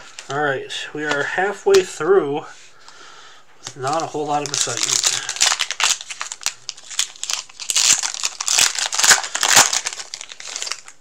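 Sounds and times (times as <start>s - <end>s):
foil wrapper tearing and crinkling: 3.7s - 11.0s.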